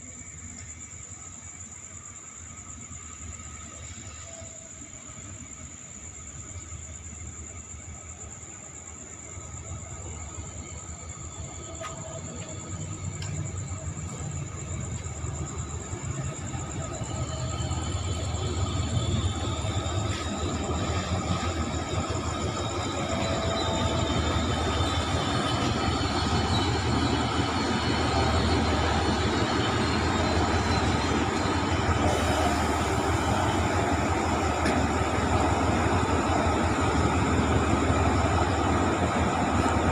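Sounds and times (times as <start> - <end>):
locomotive low rumble: 9.5 - 39.9.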